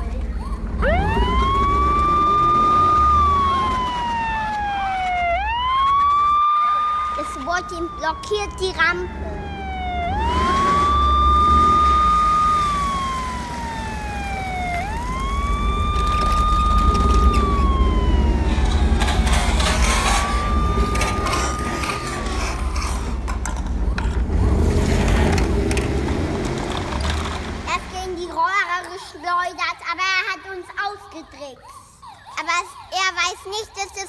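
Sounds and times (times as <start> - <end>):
siren wailing: 0.0 - 27.7, 31.2 - 34.0.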